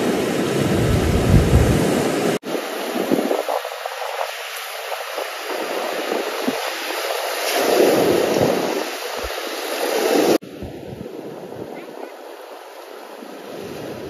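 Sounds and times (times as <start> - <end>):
sea waves breaking on rocks: 0.0 - 10.5.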